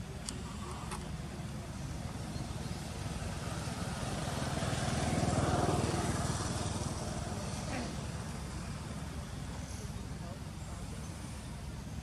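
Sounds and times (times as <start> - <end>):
vehicle engine passing by: 2.0 - 10.0.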